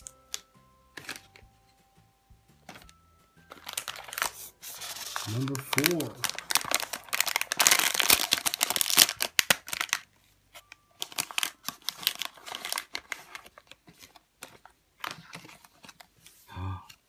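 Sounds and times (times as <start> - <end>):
paper leaflet rustling: 0.0 - 1.4, 2.6 - 16.4
plastic bag crinkling and tearing: 3.5 - 15.8.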